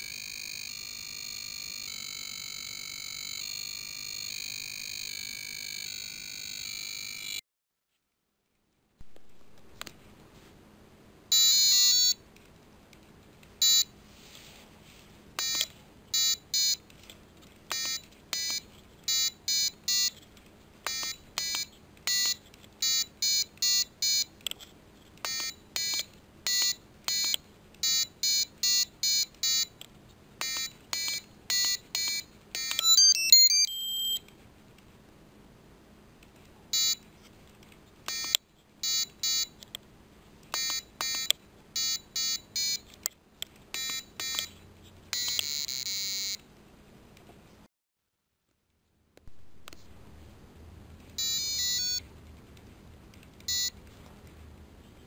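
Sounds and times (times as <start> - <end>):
electronic buzzer beeps: 0.0 - 7.4, 11.3 - 12.2, 30.4 - 34.2, 38.1 - 39.6, 40.6 - 42.8, 45.2 - 46.4, 51.2 - 52.0.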